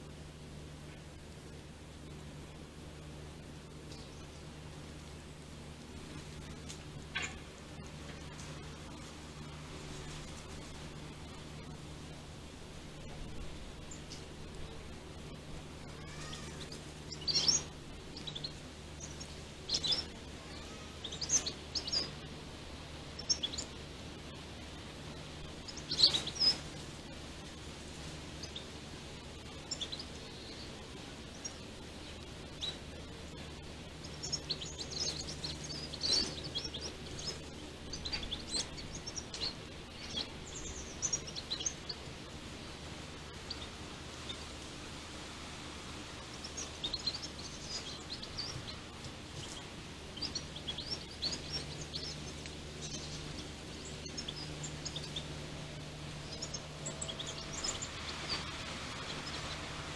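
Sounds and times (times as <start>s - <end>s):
low background hum: 0.0s - 59.9s
birds chirping: 0.8s - 59.9s.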